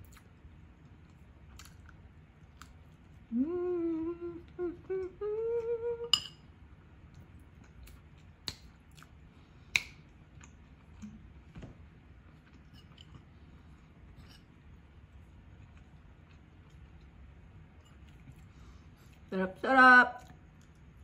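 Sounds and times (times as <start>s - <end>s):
person humming mmm: 3.3s - 6.2s
cutlery clinking on ceramic bowl: 6.1s - 6.4s.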